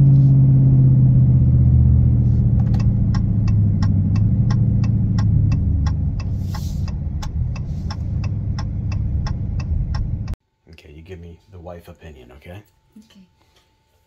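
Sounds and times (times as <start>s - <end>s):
car engine deep rumble: 0.0s - 10.4s
turn signal ticking: 2.4s - 10.4s.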